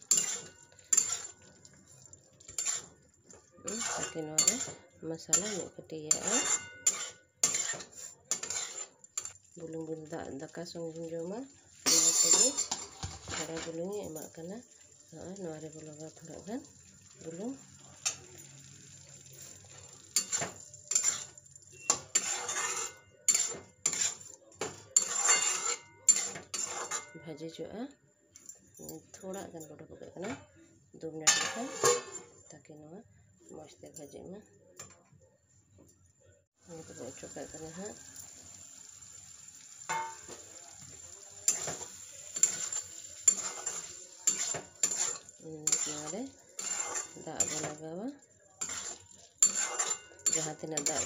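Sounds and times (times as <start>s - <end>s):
metal spatula scraping a pan: 0.0s - 9.4s, 11.0s - 14.1s, 16.0s - 27.4s, 31.2s - 32.4s, 36.7s - 51.0s
light frying sizzle: 0.0s - 27.0s, 36.6s - 51.0s.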